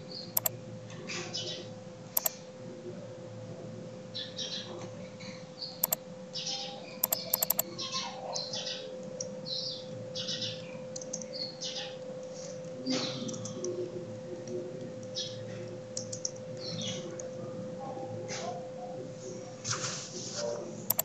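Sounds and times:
computer keyboard clicks: 7.0s - 7.6s
mouse clicks: 7.0s - 7.6s.

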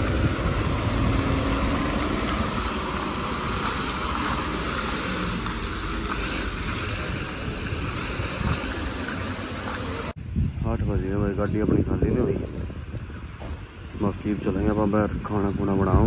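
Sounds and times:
truck engines idling: 0.0s - 10.2s
wind buffeting microphone: 0.0s - 16.0s.

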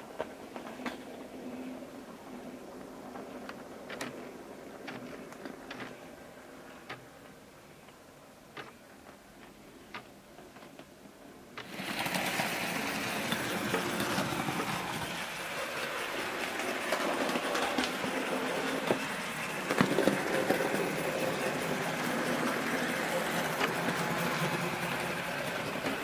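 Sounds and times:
wheels clicking on rails: 0.0s - 26.0s
model train motor whirring: 11.6s - 26.0s.

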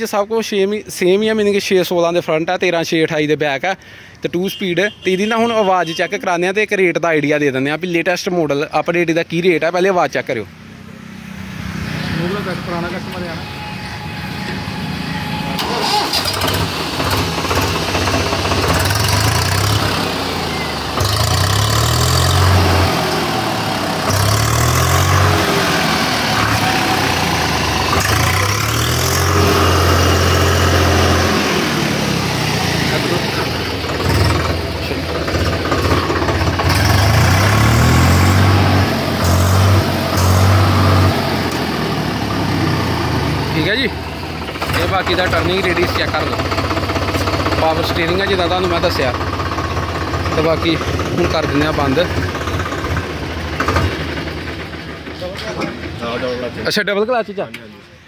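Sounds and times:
diesel engine idling: 12.1s - 58.0s
diesel tractor engine starting: 12.2s - 58.0s.

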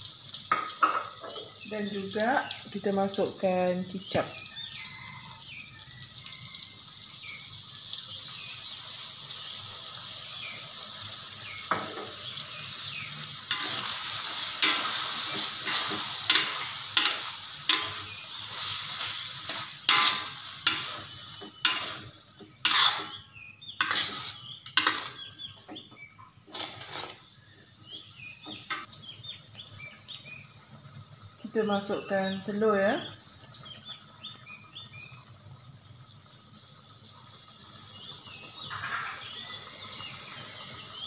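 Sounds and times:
food sizzling in a wok: 0.0s - 41.0s
metal spatula scraping wok: 13.3s - 25.4s, 26.5s - 27.3s, 38.6s - 39.4s.

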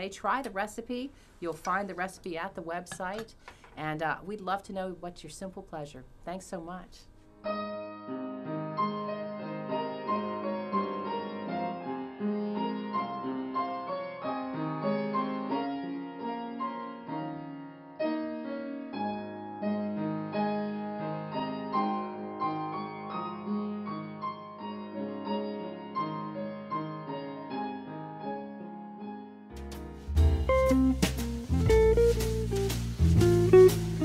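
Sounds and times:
piano music: 7.4s - 34.0s.

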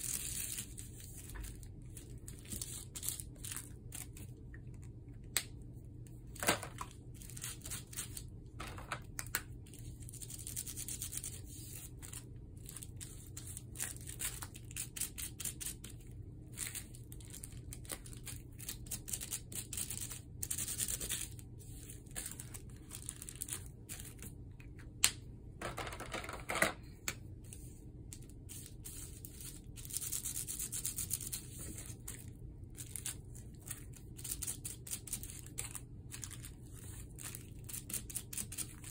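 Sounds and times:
plastic crinkling: 16.5s - 24.4s.

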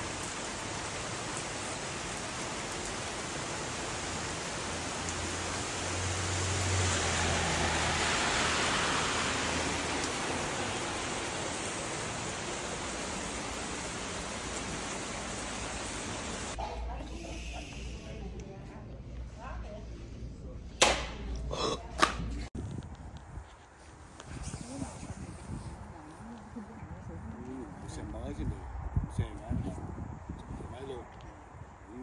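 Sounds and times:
car passing on wet road: 0.0s - 16.6s
steady rain falling: 0.0s - 16.6s.

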